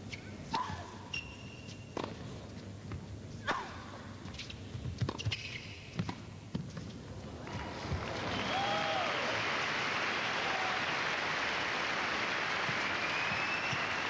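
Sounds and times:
shoes squeaking on court: 0:01.1 - 0:03.1, 0:04.2 - 0:07.0.

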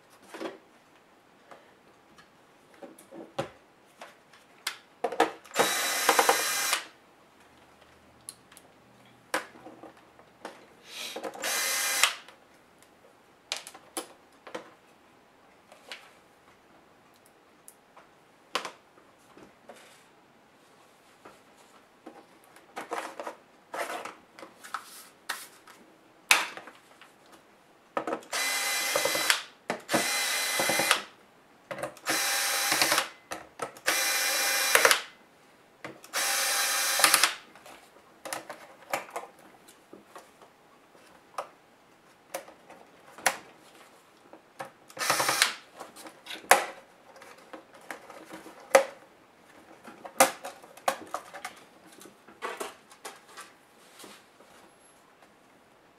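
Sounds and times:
electric screwdriver whirring: 0:05.6 - 0:06.9, 0:11.4 - 0:12.2, 0:28.3 - 0:31.1, 0:32.0 - 0:33.1, 0:33.8 - 0:35.1, 0:36.1 - 0:37.4, 0:45.0 - 0:45.6.

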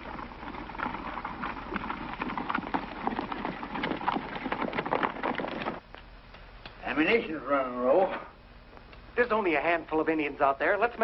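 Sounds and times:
horses galloping hoofbeats: 0:00.0 - 0:05.8.

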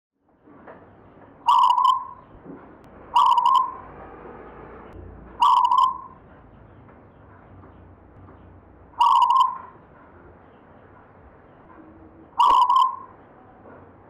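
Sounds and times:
dove cooing: 0:01.5 - 0:02.2, 0:03.2 - 0:03.8, 0:05.4 - 0:06.2, 0:09.0 - 0:09.8, 0:12.4 - 0:13.2.

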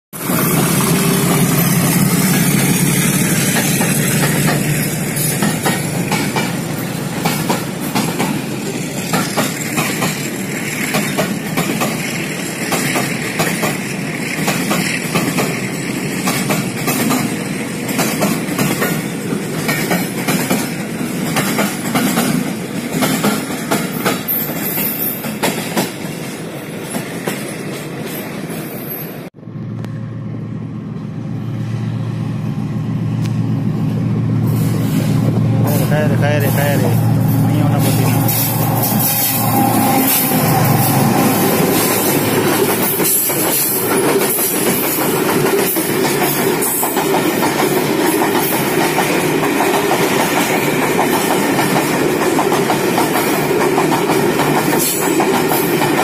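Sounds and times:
train wheels clacking on rail joints: 0:00.2 - 0:28.6, 0:34.5 - 0:56.0
diesel locomotive engine: 0:00.2 - 0:56.0.

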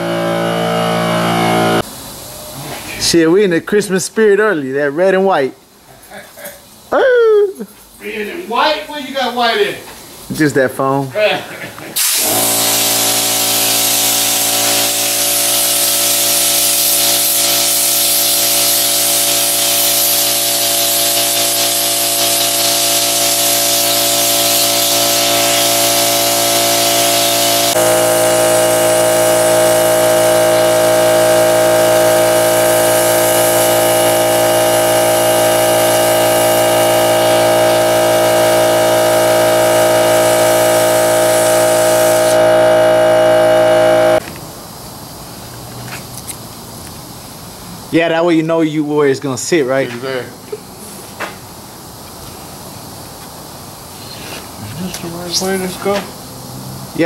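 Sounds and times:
air compressor humming: 0:00.0 - 0:03.1, 0:12.0 - 0:44.2
spray gun hissing: 0:12.0 - 0:44.2.

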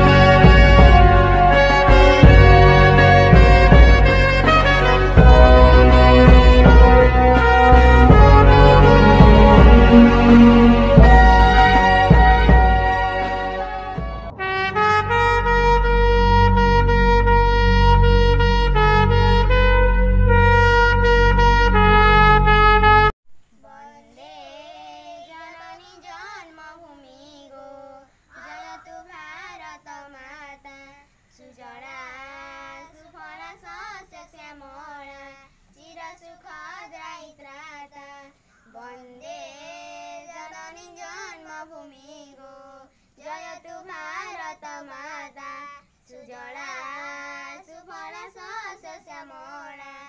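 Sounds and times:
loud brass music: 0:00.0 - 0:23.1
child singing unaccompanied: 0:23.5 - 0:50.0.

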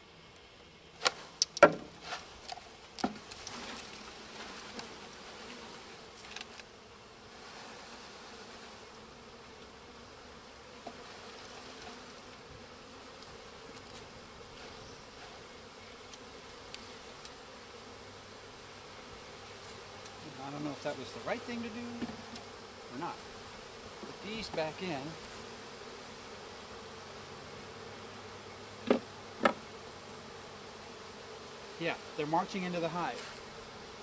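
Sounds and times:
honeybees humming: 0:00.0 - 0:34.0
sharp knocks: 0:01.6 - 0:02.0, 0:28.8 - 0:29.6.

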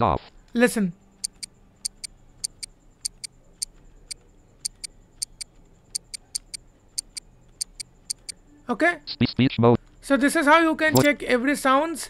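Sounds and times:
clock ticking: 0:01.2 - 0:08.4.

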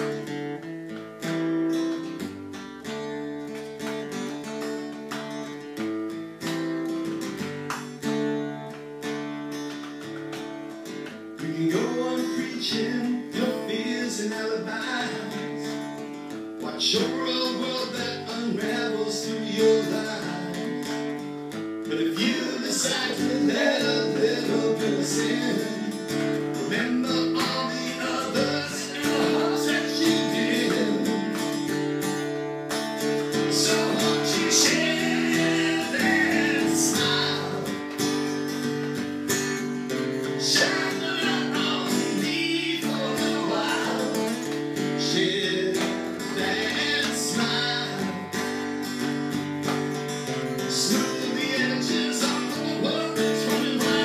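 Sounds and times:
strummed acoustic guitar: 0:00.0 - 0:54.0
person singing: 0:11.4 - 0:15.6, 0:16.6 - 0:20.8, 0:21.9 - 0:31.7, 0:33.3 - 0:38.1, 0:40.3 - 0:48.4, 0:50.7 - 0:54.0.

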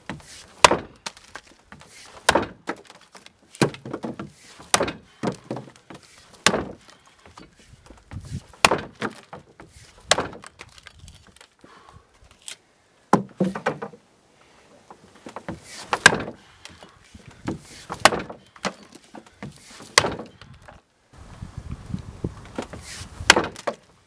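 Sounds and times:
axe chopping log: 0:00.1 - 0:01.4, 0:02.1 - 0:06.9, 0:08.2 - 0:10.7, 0:13.1 - 0:13.9, 0:15.3 - 0:16.4, 0:17.4 - 0:18.8, 0:19.4 - 0:20.3, 0:22.6 - 0:23.9.

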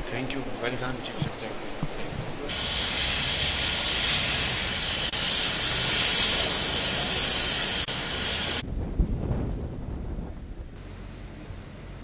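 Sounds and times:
loud rushing hiss: 0:02.4 - 0:08.7
low rumble: 0:07.9 - 0:12.0.

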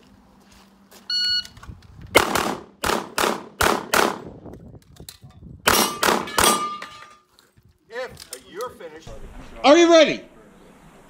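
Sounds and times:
shot timer beep: 0:01.1 - 0:01.6
pistol shots: 0:02.2 - 0:04.3, 0:05.6 - 0:06.8.

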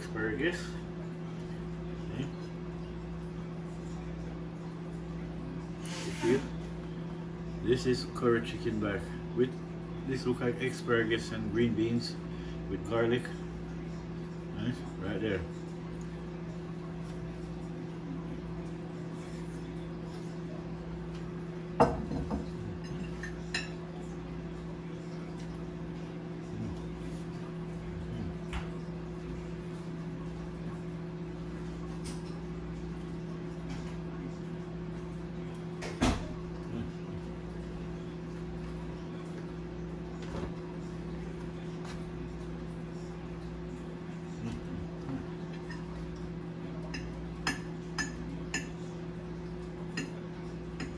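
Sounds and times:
low hum: 0:13.3 - 0:50.6.

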